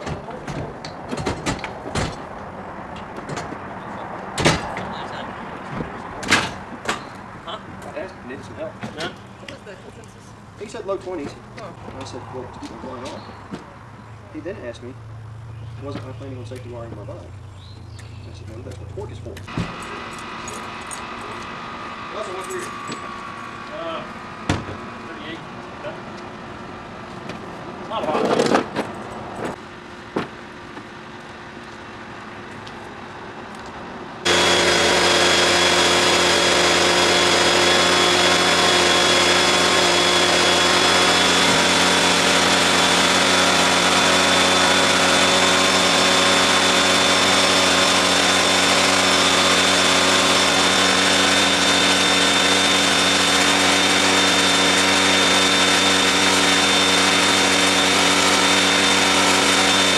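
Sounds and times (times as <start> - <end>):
machine motor humming and whining: 19.4 - 26.3, 34.3 - 59.9.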